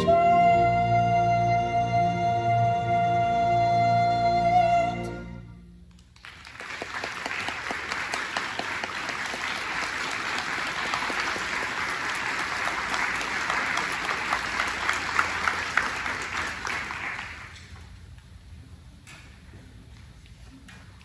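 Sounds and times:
audience applause: 0:06.2 - 0:17.8.

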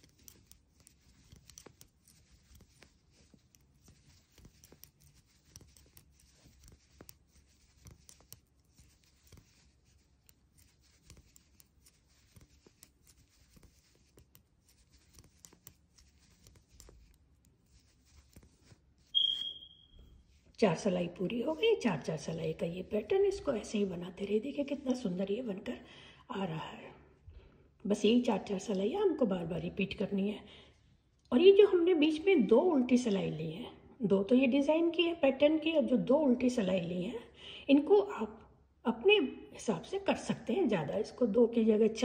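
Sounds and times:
yarn rustling: 0:00.0 - 0:19.2
metal knitting needles clicking: 0:00.0 - 0:19.8.

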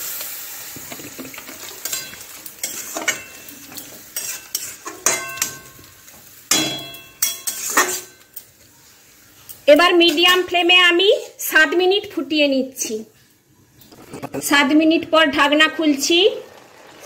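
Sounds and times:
food sizzling in a pan: 0:00.0 - 0:12.2, 0:15.8 - 0:17.0
spatula scraping a pan: 0:01.7 - 0:05.8, 0:06.8 - 0:08.2, 0:11.0 - 0:11.5.

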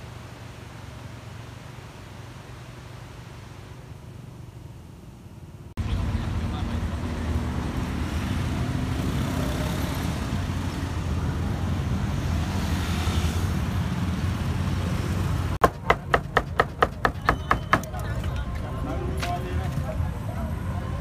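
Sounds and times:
street traffic rumble: 0:00.0 - 0:21.0
cleaver chopping on wooden block: 0:15.6 - 0:17.9.

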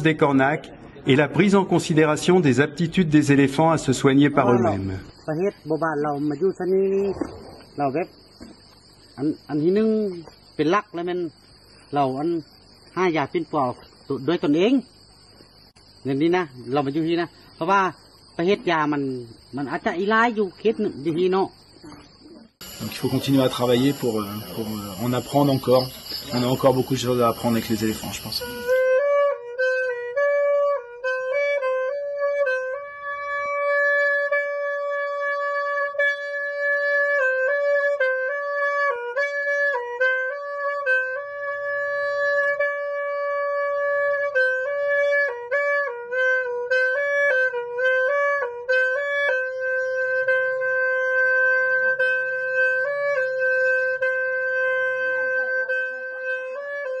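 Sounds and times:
solo wind instrument melody: 0:22.6 - 0:57.0.

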